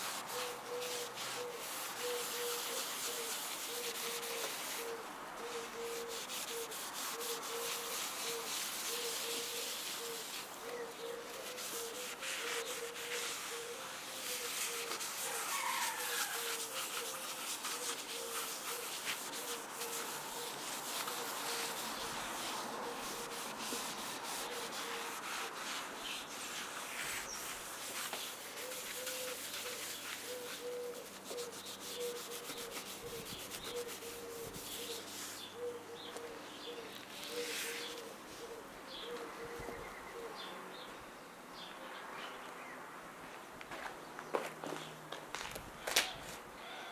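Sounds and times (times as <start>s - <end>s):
hands rubbing wooden surface: 0.0s - 36.2s.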